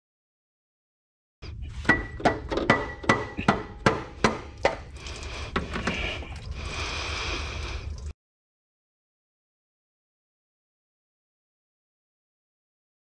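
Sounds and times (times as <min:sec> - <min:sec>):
metal striking metal with ring: 0:01.9 - 0:04.4.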